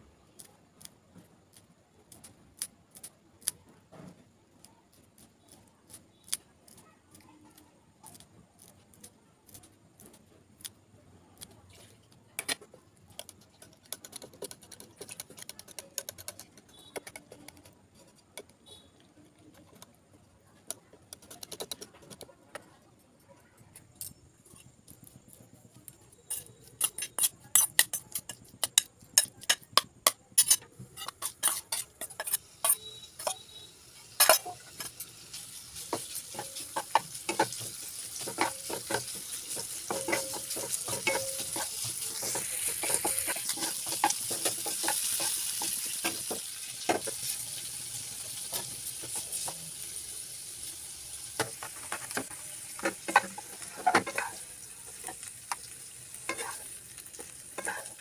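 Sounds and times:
scissors snipping chilli: 0.3s - 3.6s, 4.6s - 11.7s, 12.4s - 17.7s, 20.7s - 22.3s, 23.7s - 33.6s.

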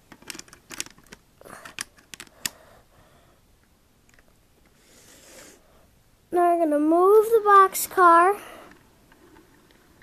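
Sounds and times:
soft hiss: 2.3s - 10.0s.

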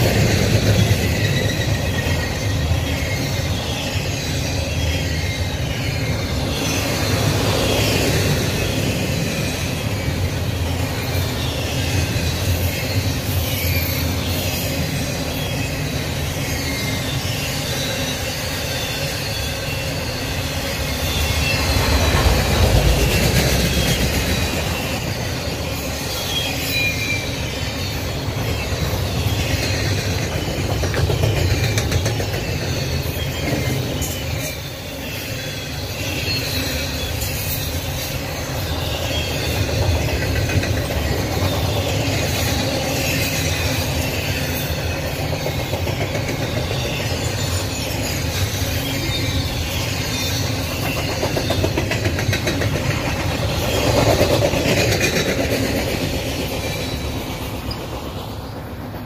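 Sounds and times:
wavering wheel squeal: 0.0s - 58.6s
rumble of train wheels on rail: 0.0s - 59.0s
clicking over rail joints: 28.4s - 34.4s, 39.5s - 59.0s.

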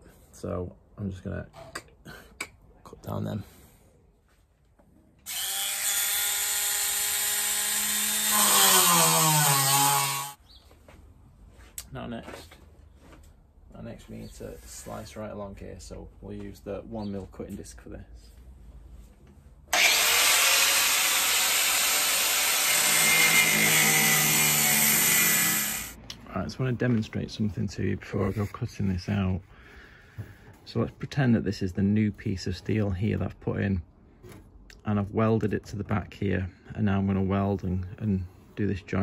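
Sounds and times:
rotary tool cutting sheet steel: 5.3s - 10.4s, 19.7s - 26.0s.

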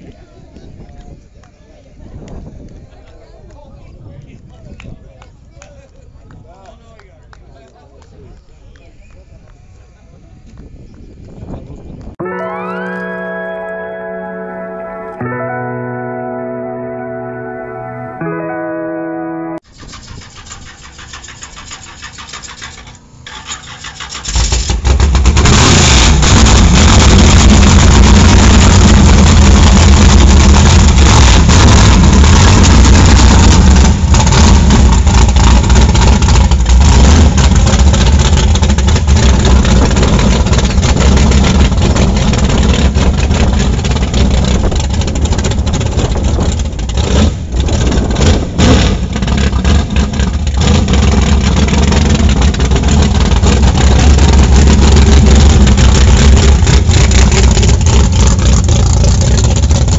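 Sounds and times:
loud truck engine running: 19.6s - 59.9s.

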